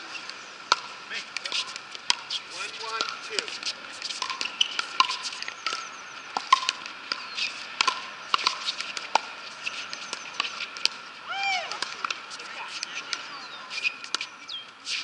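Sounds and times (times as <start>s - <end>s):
paddles hitting plastic ball: 0.7s - 9.3s.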